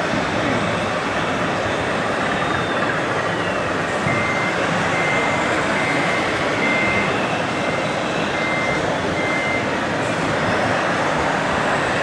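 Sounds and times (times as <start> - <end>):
reversing alarm beeping: 2.1 - 9.8.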